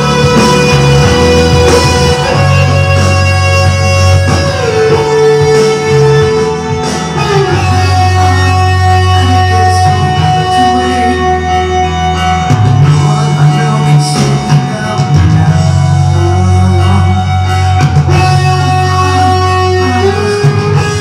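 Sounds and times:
electric lead guitar: 0.0s - 21.0s
rock music: 0.0s - 21.0s.

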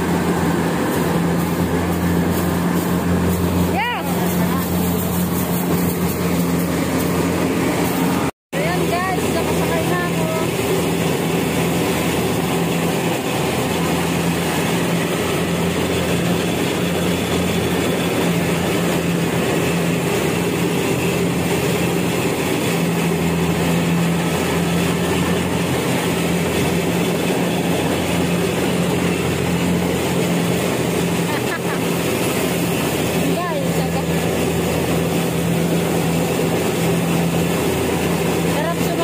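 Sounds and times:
diesel engine droning: 0.0s - 39.0s.

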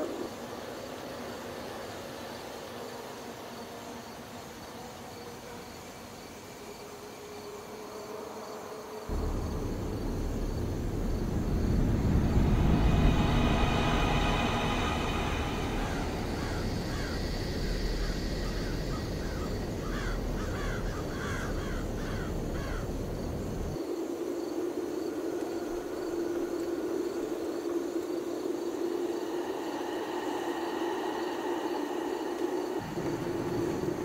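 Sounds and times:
car road and engine rumble: 9.1s - 23.8s
steady hum: 9.1s - 23.8s
repeated animal calls: 15.2s - 23.8s.

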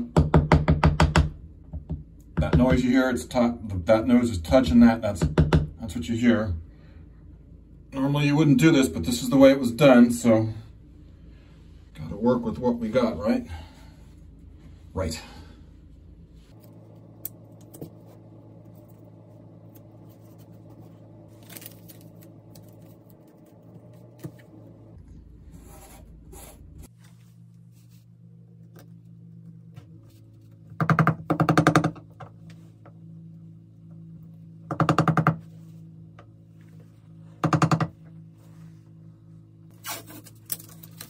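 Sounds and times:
low hum: 1.3s - 41.0s.

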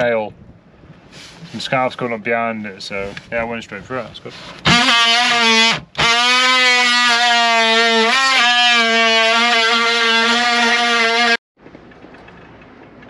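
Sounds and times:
oscillating multi-tool cutting wood: 4.6s - 11.4s.

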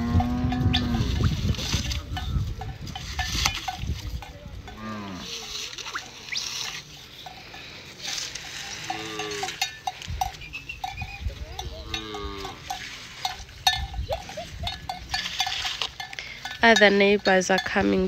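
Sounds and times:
bells clinking: 0.0s - 18.0s
cattle lowing: 4.6s - 16.8s.

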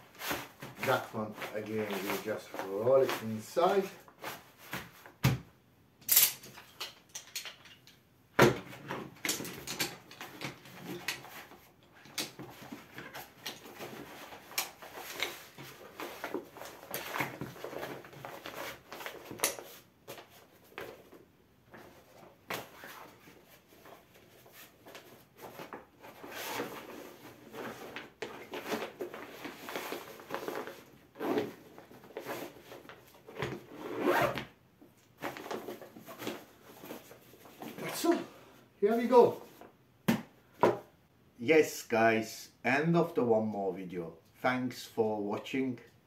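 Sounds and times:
fabric rustling and crinkling: 0.0s - 5.2s, 8.7s - 38.3s
chair poles clicking and knocking: 6.0s - 11.4s.

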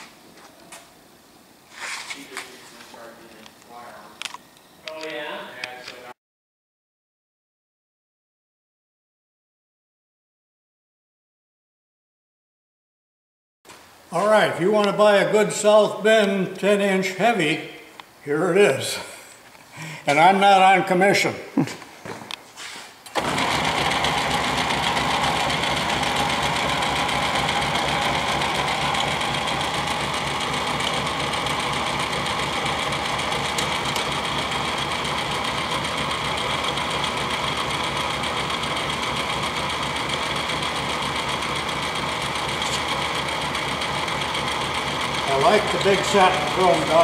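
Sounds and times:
lathe running: 23.2s - 47.0s.

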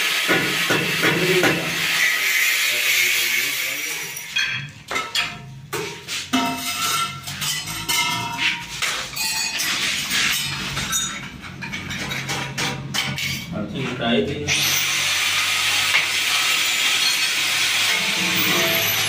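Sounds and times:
hammer on metal: 0.3s - 1.7s.

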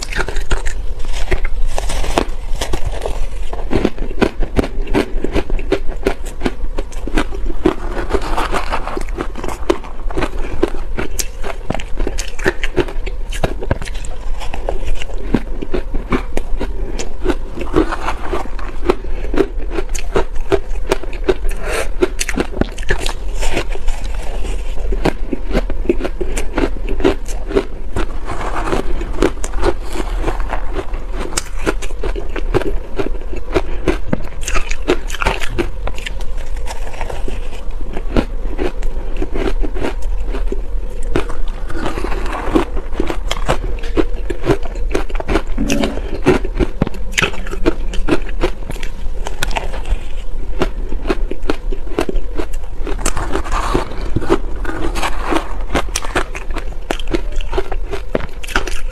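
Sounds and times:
chewing crunchy shaved ice: 0.0s - 58.9s.

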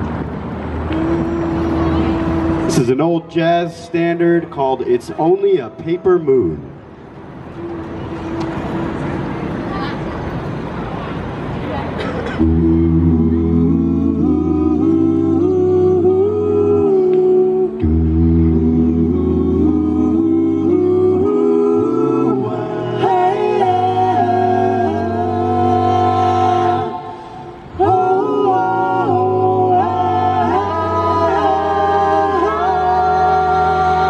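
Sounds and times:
a cappella group singing in harmony: 0.8s - 2.9s, 12.3s - 34.0s.

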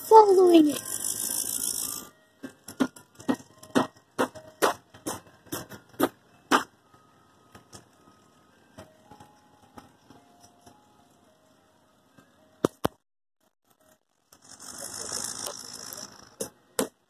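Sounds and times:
ice cream truck jingle: 0.0s - 12.9s.

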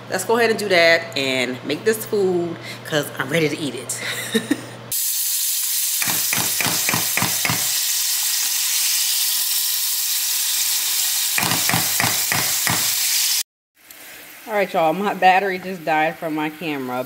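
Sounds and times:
butter sizzling in a saucepan: 4.9s - 17.0s.

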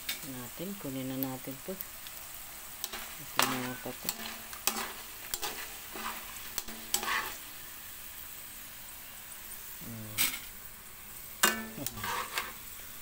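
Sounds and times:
potatoes sizzling in oil: 0.0s - 13.0s
tongs clicking against wok: 2.8s - 7.2s, 11.4s - 12.5s.

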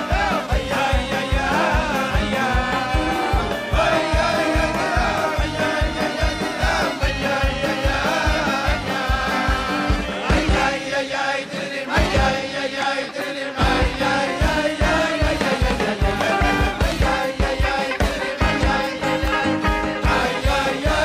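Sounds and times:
band with fast drum beat: 0.0s - 10.8s, 11.9s - 12.5s, 13.6s - 21.0s
voices singing: 0.0s - 21.0s.

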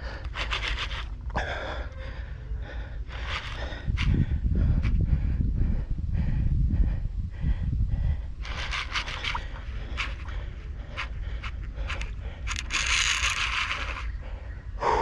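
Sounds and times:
wind rumble on microphone: 0.0s - 15.0s
fishing reel buzzing: 0.1s - 1.2s, 8.4s - 14.2s
fishing reel clicking: 0.2s - 1.1s, 8.4s - 14.2s.

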